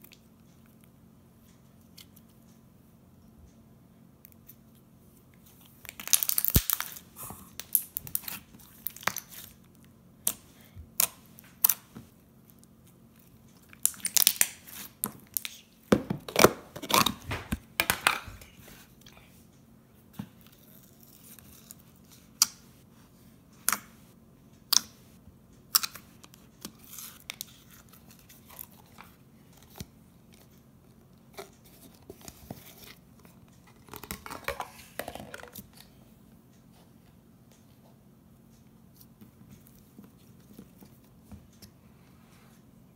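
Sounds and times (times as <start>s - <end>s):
slime popping and crackling: 5.9s - 9.4s, 13.8s - 15.6s.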